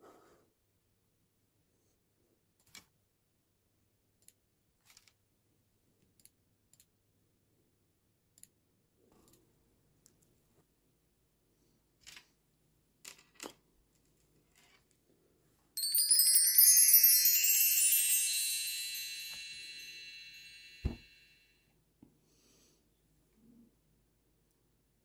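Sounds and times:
tinkling chime tones: 0:15.8 - 0:21.4.

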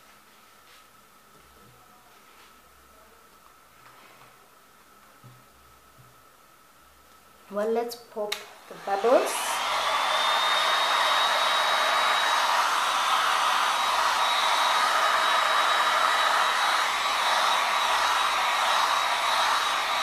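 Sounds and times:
hot-air blower whining: 0:08.3 - 0:20.0.

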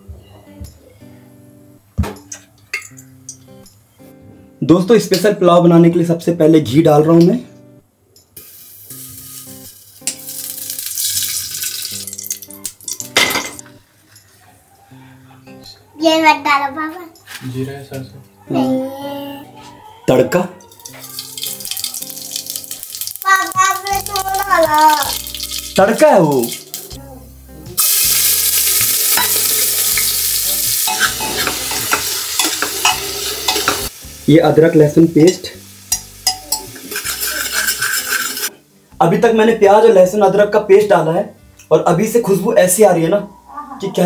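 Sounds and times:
ghee sizzling and crackling: 0:08.4 - 0:13.8, 0:20.7 - 0:38.6
spoon scraping a pot: 0:30.8 - 0:33.9, 0:35.9 - 0:38.5.

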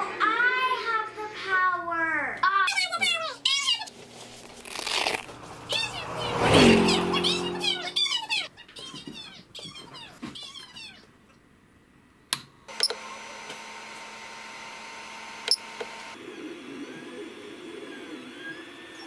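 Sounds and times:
swooping warbling sounds: 0:04.7 - 0:08.4
printer fans humming: 0:12.7 - 0:19.0.

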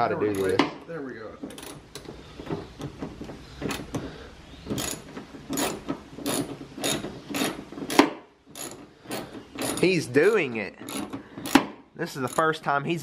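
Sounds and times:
hand ratchet clicking: 0:01.5 - 0:02.1, 0:04.7 - 0:12.6.

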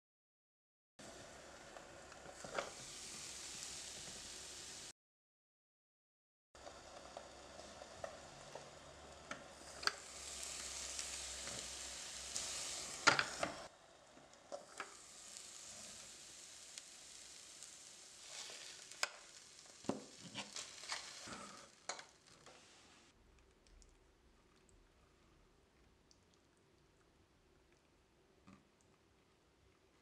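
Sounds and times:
food sizzling on hot plates: 0:01.0 - 0:04.9, 0:06.6 - 0:23.1.

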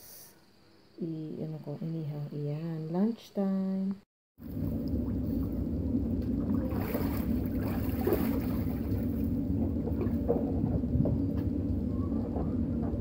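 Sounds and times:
water splashing in paddling pool: 0:04.4 - 0:11.4
steady low rumble: 0:04.4 - 0:13.0.

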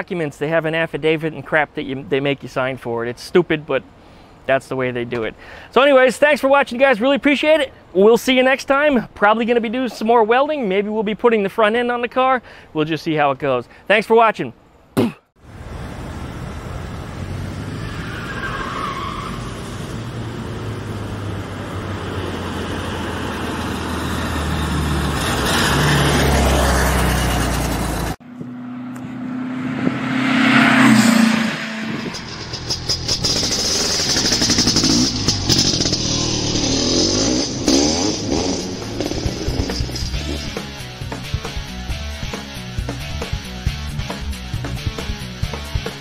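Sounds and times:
car engine revving: 0:16.4 - 0:42.3.

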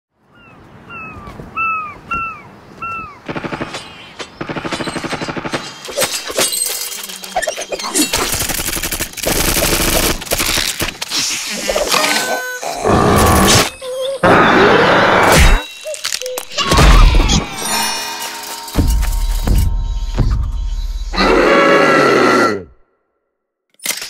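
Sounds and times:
noisy cartoon action effects: 0:11.5 - 0:20.6
bird-like cartoon chirps: 0:13.7 - 0:20.9.

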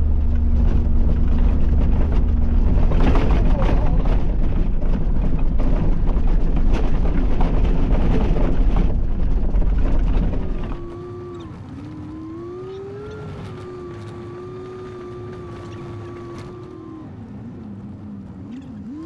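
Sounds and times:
truck rumbling on gravel: 0:00.0 - 0:19.0
whine rising and dipping in pitch: 0:10.4 - 0:19.0.

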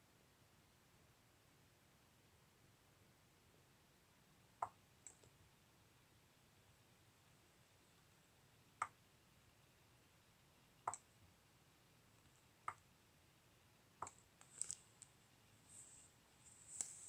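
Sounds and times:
faint rustling: 0:14.2 - 0:17.0.

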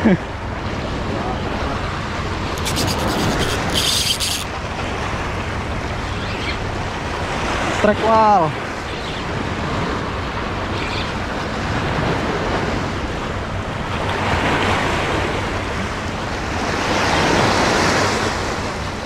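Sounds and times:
waves breaking on rocks: 0:06.7 - 0:19.0.

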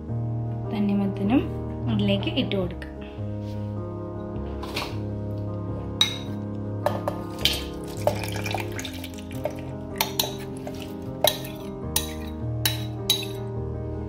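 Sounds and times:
background music with held notes: 0:00.0 - 0:14.0
utensil clinking steel jar: 0:06.9 - 0:13.4.

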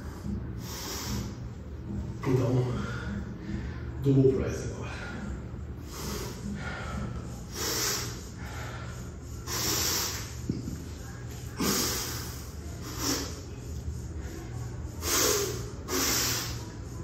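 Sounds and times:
man breathing heavily: 0:00.0 - 0:01.5, 0:02.7 - 0:04.0, 0:04.8 - 0:10.5, 0:11.5 - 0:16.7.

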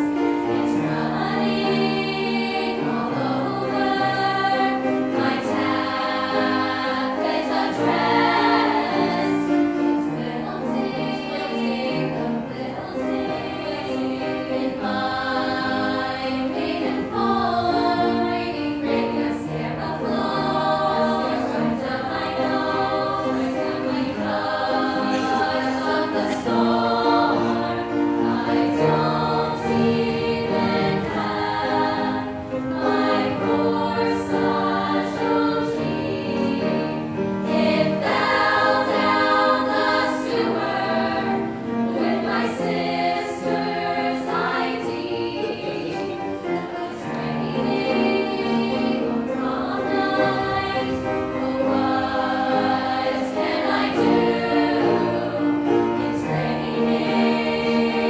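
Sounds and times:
women's choir singing: 0:00.0 - 0:58.0.

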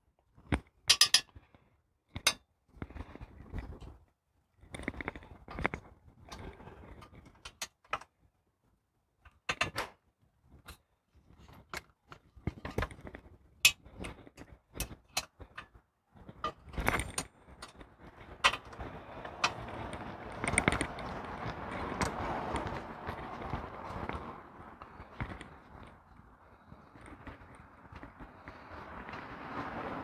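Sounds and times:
small metallic clicks and knocks: 0:00.4 - 0:08.2, 0:09.2 - 0:10.0, 0:10.6 - 0:24.2.

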